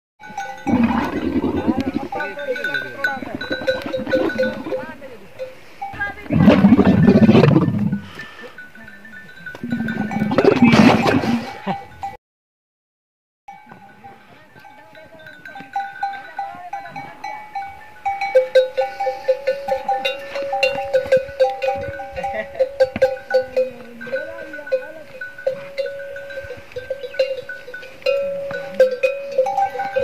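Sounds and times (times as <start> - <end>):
camel bells jangling: 0.2 - 6.2, 7.6 - 10.7, 13.5 - 30.0
camel grumbling: 0.6 - 5.0, 6.2 - 8.1, 9.6 - 11.6.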